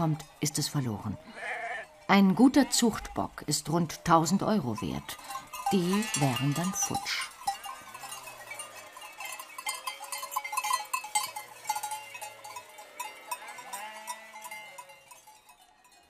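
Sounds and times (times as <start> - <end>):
sheep bells clinking: 0.0 - 16.0
sheep bleating: 1.1 - 4.0, 5.7 - 9.2, 12.4 - 14.9.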